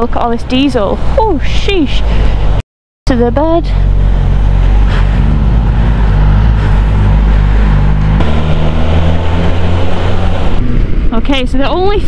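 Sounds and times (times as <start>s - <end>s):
motorcycle engine running: 3.1s - 11.5s
wind rumble on microphone: 3.2s - 12.0s.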